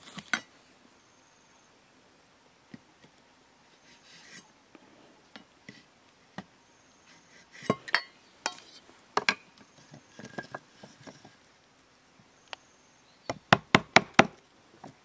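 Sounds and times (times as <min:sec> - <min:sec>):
knife scraping bamboo: 0:03.8 - 0:04.5, 0:07.1 - 0:07.8.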